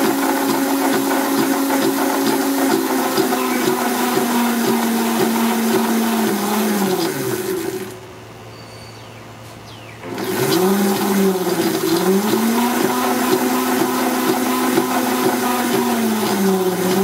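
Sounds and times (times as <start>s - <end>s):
electric motor whining: 0.0s - 8.0s, 10.0s - 17.0s
faint hum: 7.3s - 11.4s.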